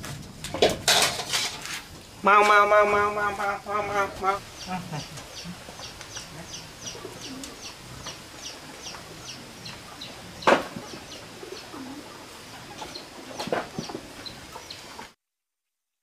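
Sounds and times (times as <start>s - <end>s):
chicks peeping: 2.9s - 15.1s.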